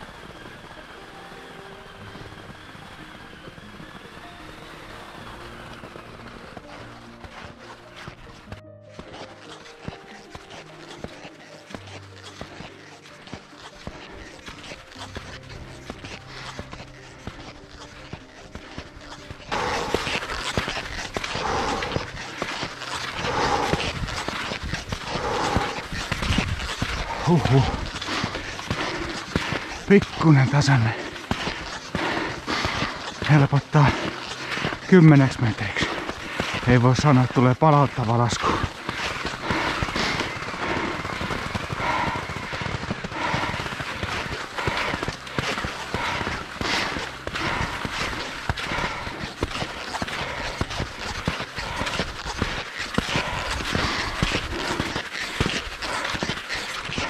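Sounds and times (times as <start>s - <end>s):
skis and poles crunching in snow: 0.0s - 57.0s
person breathing hard: 19.5s - 34.9s, 35.7s - 37.4s, 38.4s - 57.0s.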